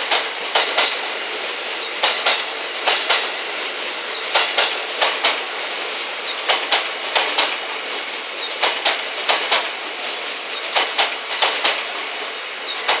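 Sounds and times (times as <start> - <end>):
steady rolling hiss: 0.0 - 13.0
train wheels clicking over rail joints: 0.0 - 13.0.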